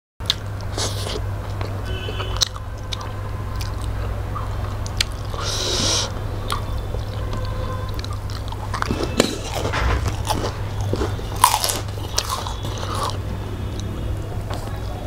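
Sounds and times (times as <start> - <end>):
people chewing food: 0.2 - 15.0.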